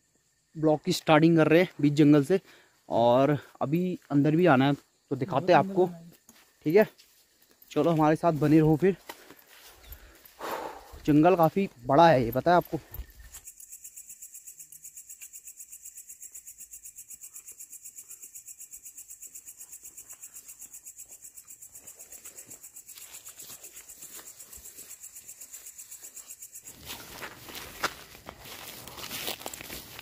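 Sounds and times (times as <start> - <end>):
insects chirping: 0.0 - 30.0
footsteps on dirt trail: 2.5 - 13.5, 20.0 - 30.0.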